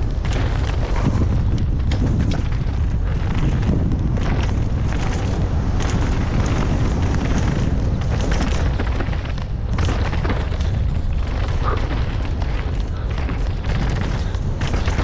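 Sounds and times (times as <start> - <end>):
bike tyres clicking and rattling: 0.0 - 15.0
wind buffeting microphone: 0.0 - 15.0.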